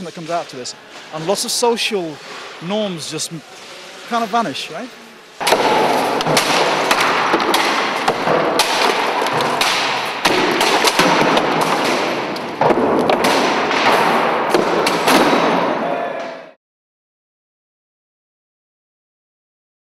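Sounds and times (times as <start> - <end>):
sledgehammers smashing appliances: 5.4 - 15.8.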